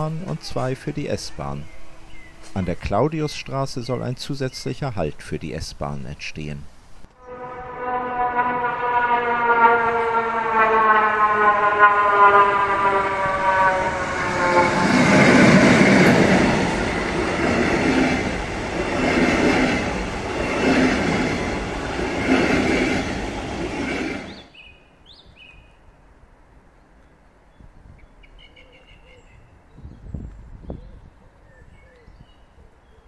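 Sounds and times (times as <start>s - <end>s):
electric locomotive passing: 0.0s - 24.7s
train wheels on rails: 10.4s - 24.5s.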